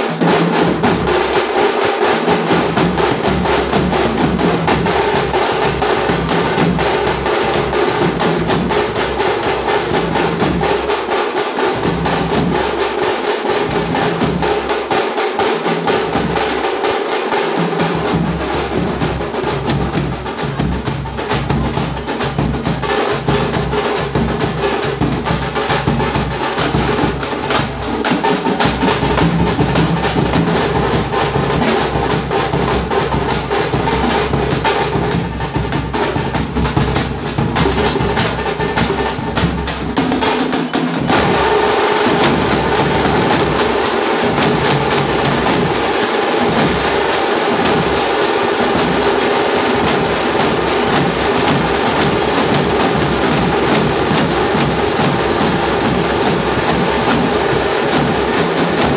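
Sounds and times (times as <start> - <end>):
hand drums: 0.0 - 58.9
bass drums played with sticks: 2.2 - 10.9, 11.7 - 15.0, 17.8 - 58.9.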